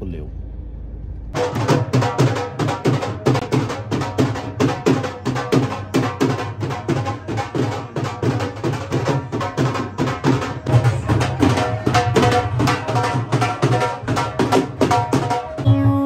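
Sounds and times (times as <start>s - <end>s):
music with steady drum beat: 1.4s - 16.0s.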